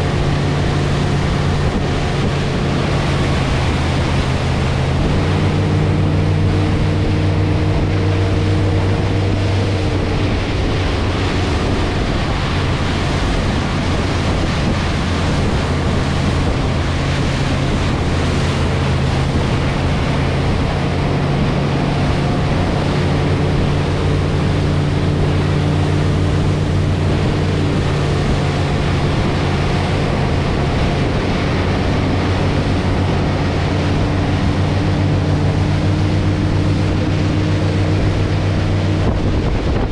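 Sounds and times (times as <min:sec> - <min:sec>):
motorboat engine drone: 0:00.0 - 0:39.9
rush of wake: 0:00.0 - 0:39.9
wind: 0:00.0 - 0:39.9.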